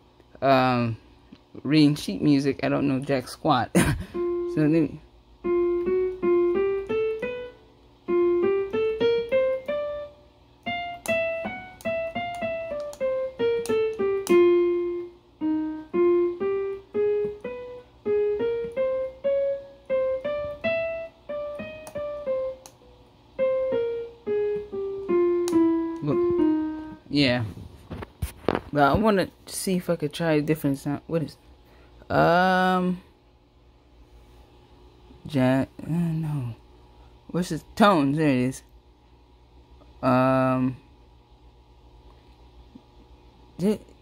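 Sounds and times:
keyboard piano melody: 0:04.0 - 0:27.4.

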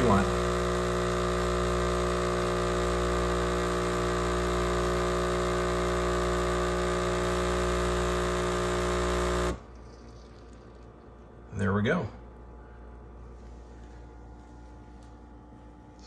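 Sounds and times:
espresso machine pump humming: 0:00.0 - 0:11.2.

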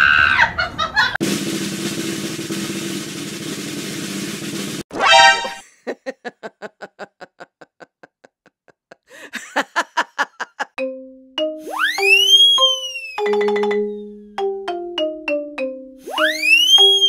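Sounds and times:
plucked comedy music: 0:04.9 - 0:05.6, 0:10.8 - 0:17.0.

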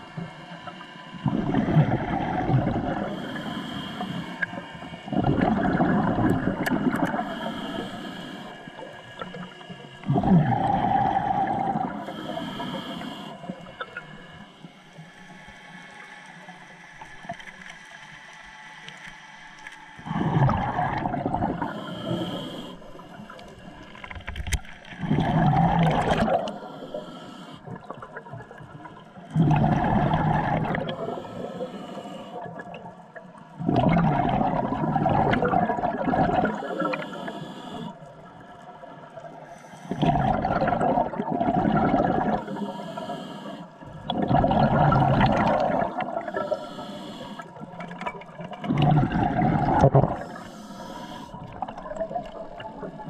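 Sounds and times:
exhaled bubbles gurgling: 0:00.0 - 0:14.5, 0:20.0 - 0:53.0
diver breathing through regulator: 0:01.4 - 0:14.8, 0:20.0 - 0:28.0, 0:29.4 - 0:32.6, 0:34.5 - 0:38.1, 0:39.4 - 0:48.0, 0:48.6 - 0:53.0.

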